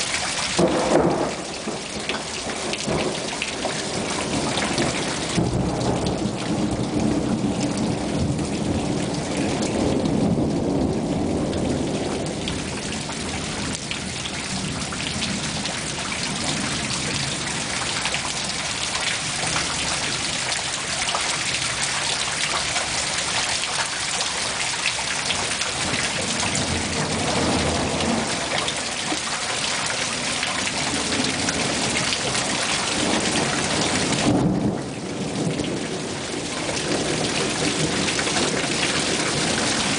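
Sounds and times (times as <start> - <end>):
heavy rain falling: 0.0 - 39.9
thunder rumbling: 0.6 - 17.5, 25.1 - 39.9.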